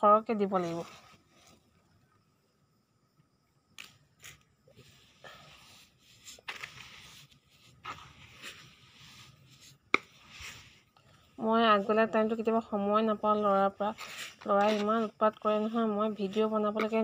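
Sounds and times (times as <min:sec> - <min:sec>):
gritty scrapes and crunches: 0:03.8 - 0:11.3, 0:13.8 - 0:17.0
hand digging in sandy soil: 0:04.2 - 0:12.3.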